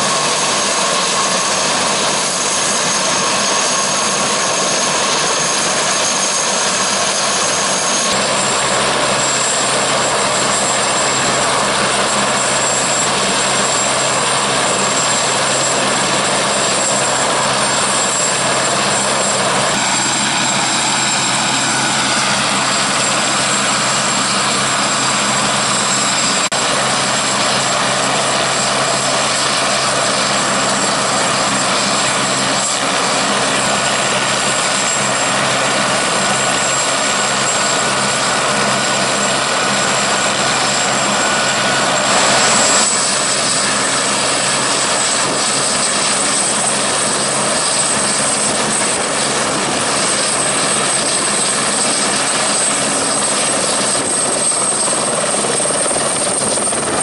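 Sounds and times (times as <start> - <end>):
helicopter rotor low drone: 0.0 - 57.0
helicopter turbine whine: 0.0 - 57.0.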